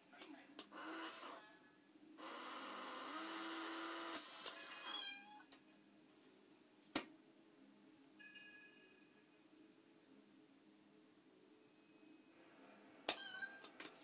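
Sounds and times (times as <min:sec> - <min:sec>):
toy cat meowing: 0:13.1 - 0:13.7.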